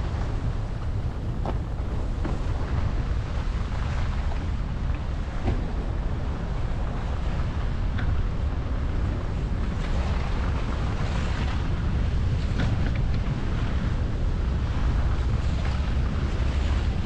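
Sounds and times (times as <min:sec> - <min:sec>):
tyres on slushy streets: 0:00.0 - 0:17.0
wind buffeting microphone: 0:00.0 - 0:17.0.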